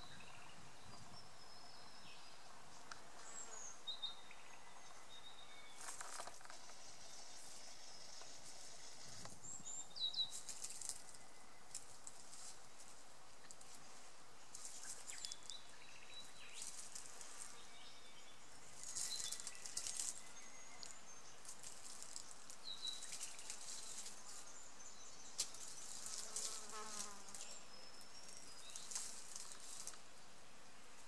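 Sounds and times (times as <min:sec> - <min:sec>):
dry leaves rustling and crackling: 0:05.7 - 0:30.1
insect buzz: 0:05.8 - 0:31.0.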